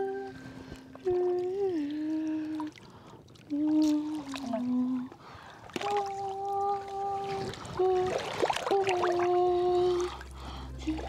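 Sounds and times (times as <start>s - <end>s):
music of long held notes: 0.0s - 2.7s, 6.0s - 11.0s
water splashing and dripping: 0.7s - 11.0s.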